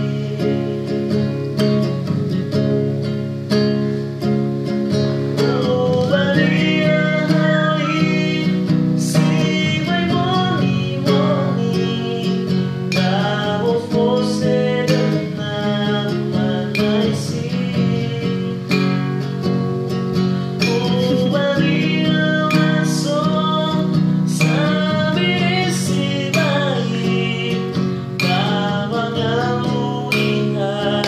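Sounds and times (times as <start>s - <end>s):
man singing: 0.0s - 1.6s, 5.3s - 19.5s, 20.4s - 31.0s
acoustic guitar strumming: 0.0s - 31.0s.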